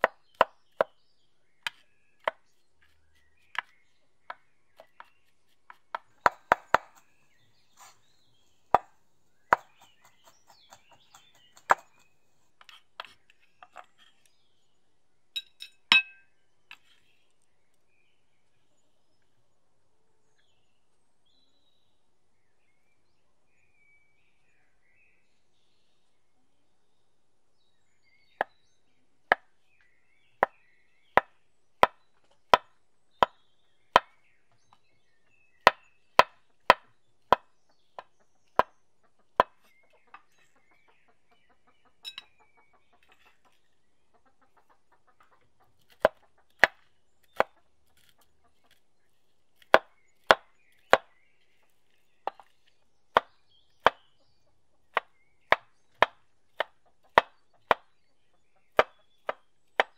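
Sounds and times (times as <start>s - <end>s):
knife chopping on wooden board: 1.6s - 7.2s, 8.7s - 13.9s, 35.7s - 38.7s, 39.4s - 39.7s, 45.8s - 48.8s, 49.6s - 51.1s, 52.3s - 54.0s, 54.9s - 57.9s, 58.8s - 59.9s.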